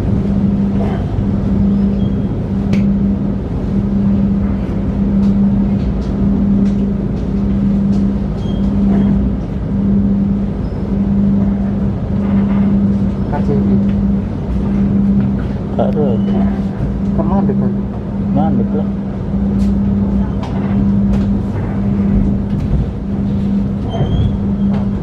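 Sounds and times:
train running hum and rumble: 0.0s - 25.0s.

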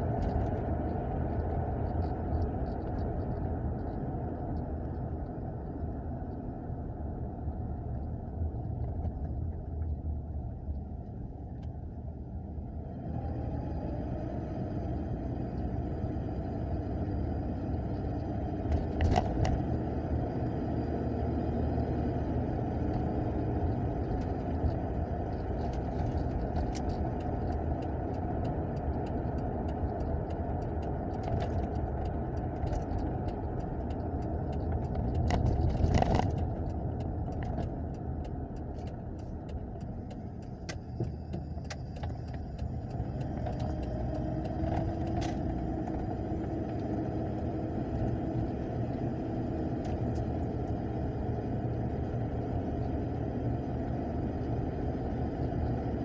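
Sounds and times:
engine and road rumble: 0.0s - 56.0s
light clicks and rattles: 23.6s - 45.6s.

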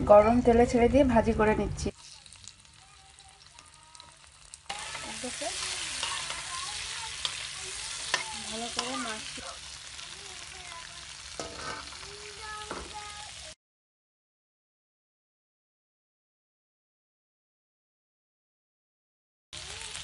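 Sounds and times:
prawns sizzling in hot oil: 1.8s - 13.6s, 19.5s - 20.0s.

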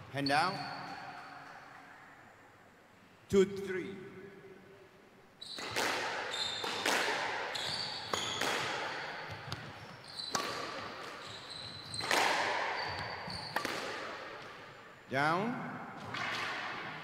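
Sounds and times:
squash ball echoing crack: 5.5s - 17.0s
shoes squeaking on wooden floor: 7.5s - 8.4s, 9.1s - 10.4s, 11.0s - 13.6s.

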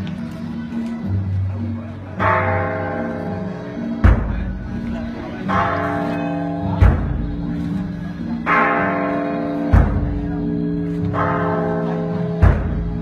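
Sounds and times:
large bell ringing: 2.2s - 13.0s
big drum beats: 4.0s - 4.8s, 6.7s - 7.5s, 9.7s - 10.4s, 12.4s - 13.0s.

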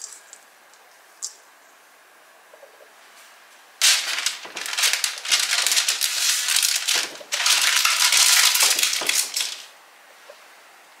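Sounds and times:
parchment paper crinkling: 3.8s - 9.7s.

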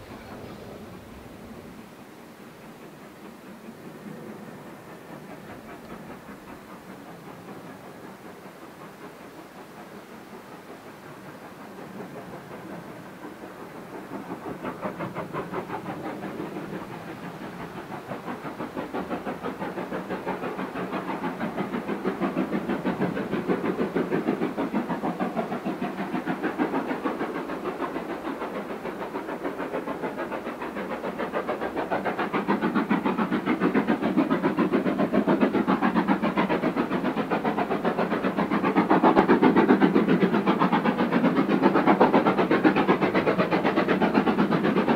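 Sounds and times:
steam locomotive exhaust chuffs: 0.0s - 44.9s.

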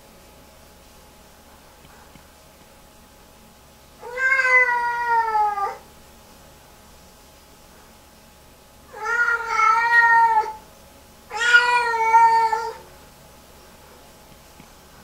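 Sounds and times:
cat meowing: 4.0s - 5.8s, 8.9s - 10.6s, 11.3s - 12.9s.

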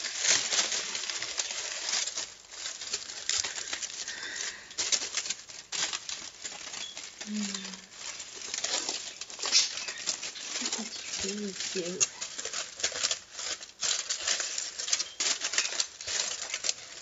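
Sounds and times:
aluminium foil crinkling: 0.0s - 17.0s.

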